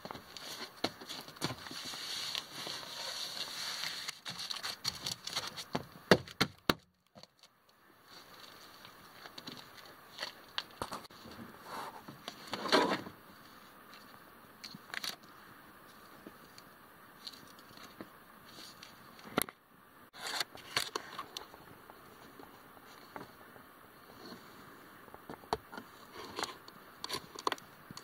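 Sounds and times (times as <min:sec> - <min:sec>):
wiring harness scrapes and rustles: 0:00.1 - 0:05.7.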